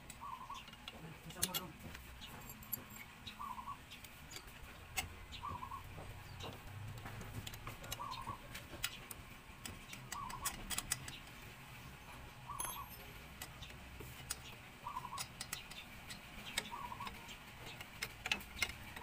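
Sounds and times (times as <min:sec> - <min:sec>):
wrench clicking on a bolt: 0:09.6 - 0:11.3, 0:15.1 - 0:17.2
short chirping sound: 0:12.5 - 0:13.3.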